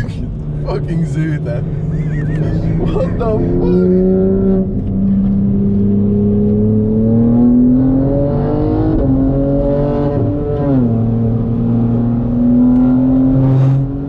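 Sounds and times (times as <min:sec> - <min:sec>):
car engine accelerating: 0:00.0 - 0:14.0.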